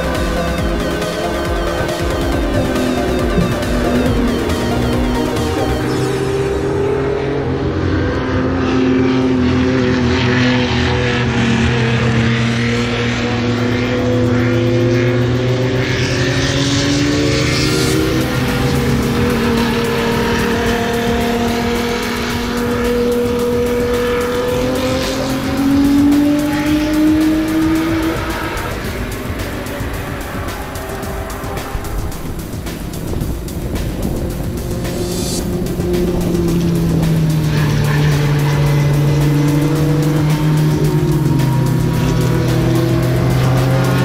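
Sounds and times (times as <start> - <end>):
racing car engines: 0.0 - 44.0.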